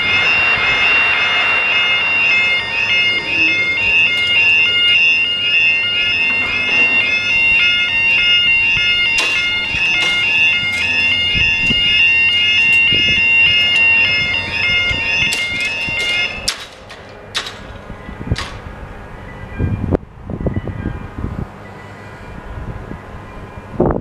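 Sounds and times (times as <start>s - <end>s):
level crossing alarm warbling: 0.0s - 16.5s.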